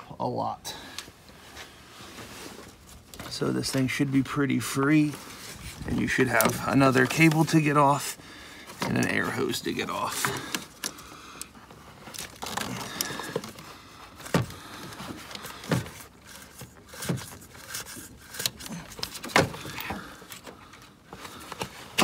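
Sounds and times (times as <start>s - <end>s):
gloved hands clicking and rustling: 8.7s - 22.0s.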